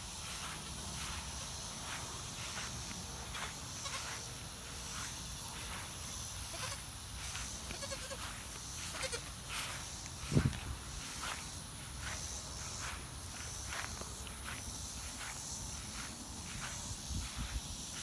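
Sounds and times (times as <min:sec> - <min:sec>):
footsteps in grass: 0:00.0 - 0:18.0
goat kid bleating: 0:03.8 - 0:04.2, 0:06.4 - 0:06.9, 0:07.6 - 0:09.3.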